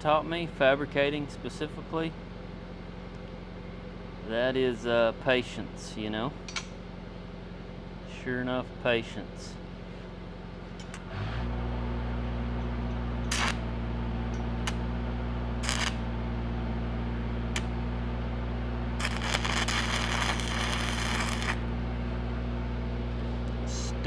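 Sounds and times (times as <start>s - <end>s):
welding machine engine hum: 9.6s - 24.0s
arc strikes: 13.3s - 13.7s, 15.6s - 16.1s, 19.0s - 21.8s
welding arc crackling: 13.3s - 13.7s, 15.6s - 16.1s, 19.0s - 21.7s.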